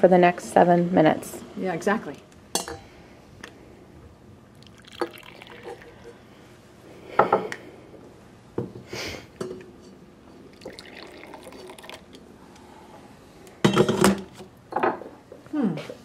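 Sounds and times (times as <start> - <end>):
coffee pouring into cups: 4.5 - 6.3, 10.3 - 12.6
cups and carafe clinking: 4.6 - 6.2, 10.5 - 12.2.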